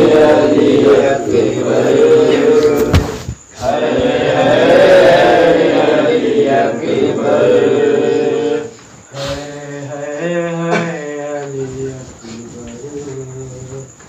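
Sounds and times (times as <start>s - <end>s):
crowd of men chanting: 0.0s - 8.7s
sharp knock: 2.7s - 3.4s.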